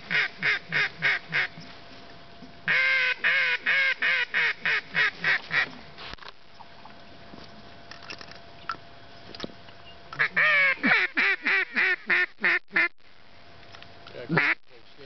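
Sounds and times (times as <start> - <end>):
duck call quacking: 0.0 - 1.5, 2.7 - 5.7, 10.2 - 12.9, 14.3 - 14.6.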